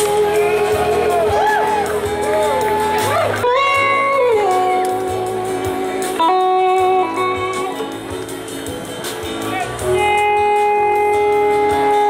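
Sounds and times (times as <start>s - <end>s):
bass guitar: 0.0s - 12.0s
electric slide guitar: 0.0s - 12.0s.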